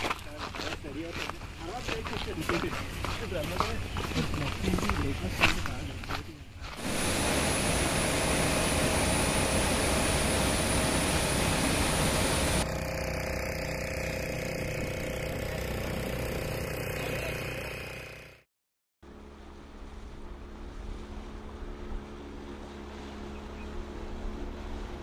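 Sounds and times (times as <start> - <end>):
motorboat engine humming: 6.8 - 25.0.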